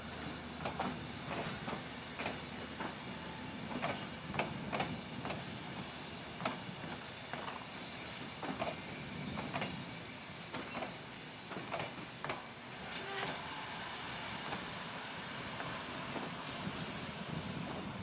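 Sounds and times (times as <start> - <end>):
low rumble of rolling carriages: 0.0 - 18.0
wheels clicking over rail joints: 0.2 - 3.0, 3.7 - 5.4, 6.4 - 7.7, 8.4 - 9.8, 10.5 - 13.4.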